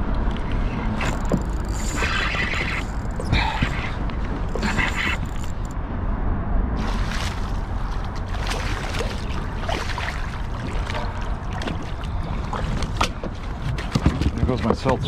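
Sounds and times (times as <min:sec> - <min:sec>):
low rumble: 0:00.0 - 0:13.6
water splashing against kayak hull: 0:06.8 - 0:15.0.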